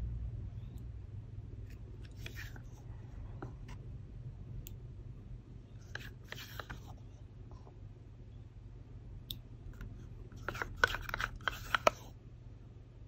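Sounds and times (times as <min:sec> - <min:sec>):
low hum: 0:00.0 - 0:05.8
spoon scraping plastic cup: 0:02.0 - 0:02.7, 0:05.9 - 0:06.9, 0:10.4 - 0:12.1.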